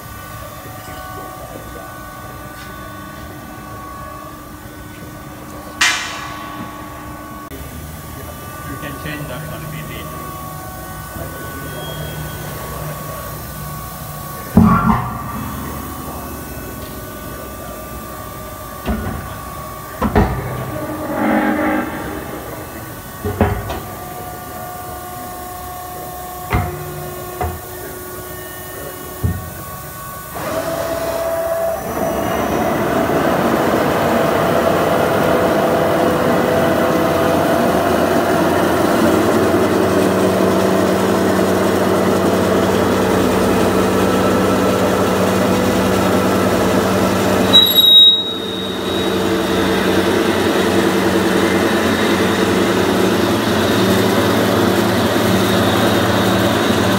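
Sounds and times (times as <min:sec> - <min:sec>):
machine hum: 0:00.0 - 0:25.0, 0:35.6 - 0:56.9
loud squeal: 0:14.5 - 0:17.8, 0:19.8 - 0:23.2, 0:47.4 - 0:50.4.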